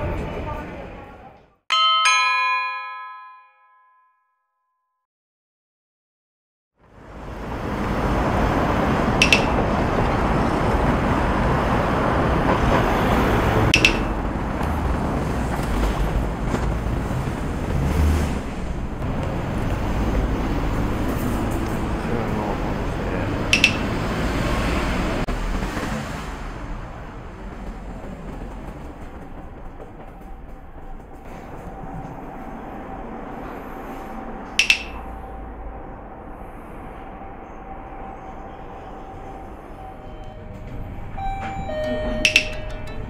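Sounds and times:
city street traffic rumble: 0.0 - 1.6, 6.8 - 43.0
short metallic clinks: 34.6 - 35.0.

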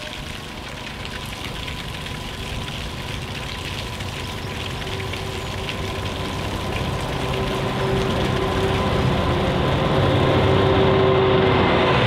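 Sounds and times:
locomotive engine drone: 0.0 - 12.0
steady whine: 5.0 - 12.0.

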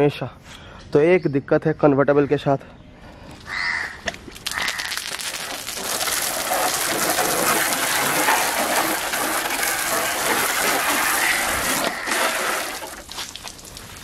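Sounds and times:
hose water splashing on plastic: 4.3 - 14.0.

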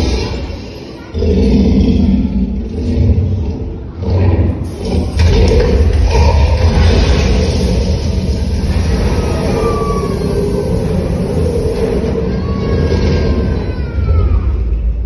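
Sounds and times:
deep continuous rumble: 1.6 - 15.0
hissing rush of flame: 4.6 - 14.0.

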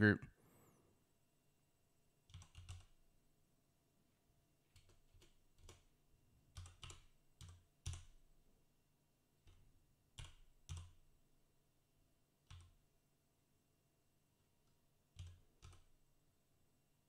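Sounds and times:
computer keyboard keystrokes: 2.2 - 3.0, 4.7 - 5.9, 6.5 - 8.3, 9.4 - 11.0, 12.4 - 12.8, 15.1 - 16.0.

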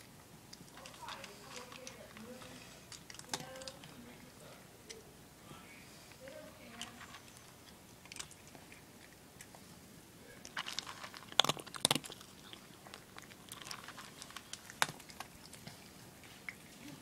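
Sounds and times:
cat crunching dry kibble: 0.0 - 5.0, 6.0 - 9.7, 10.4 - 16.9.

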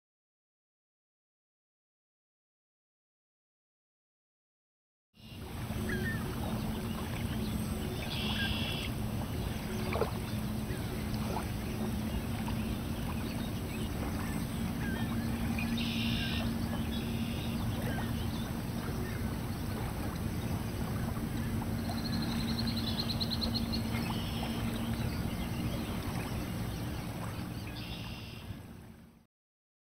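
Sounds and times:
low drone and rumble: 5.4 - 29.0.

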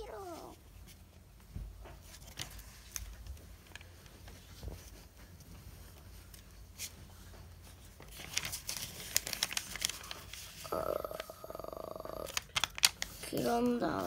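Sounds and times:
paper being folded and crinkling: 2.0 - 14.0.

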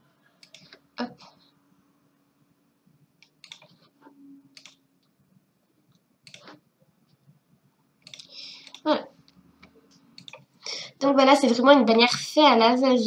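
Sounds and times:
computer mouse clicks: 0.4 - 0.8, 3.2 - 3.8, 4.5 - 5.1, 5.9 - 6.6, 8.0 - 8.9, 9.6 - 10.5.

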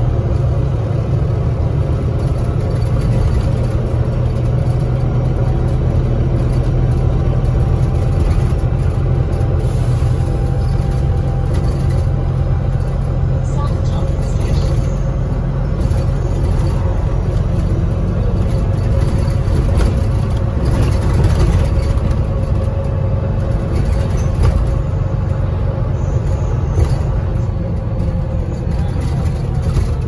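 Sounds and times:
bus engine and road rumble: 0.0 - 30.0.

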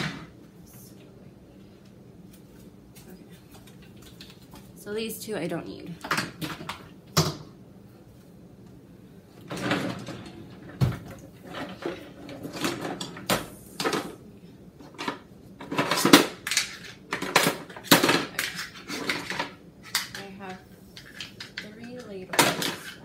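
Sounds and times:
drawers sliding and knocking shut: 9.4 - 14.1.

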